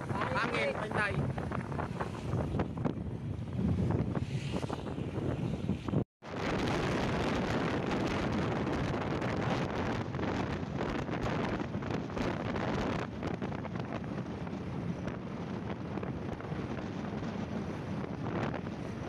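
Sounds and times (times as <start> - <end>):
wind rushing over microphone: 0.0 - 19.0.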